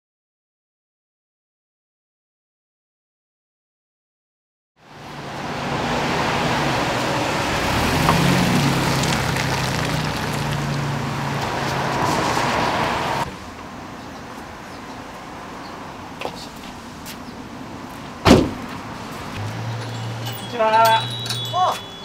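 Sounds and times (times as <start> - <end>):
van engine and tyre noise: 4.8 - 22.0.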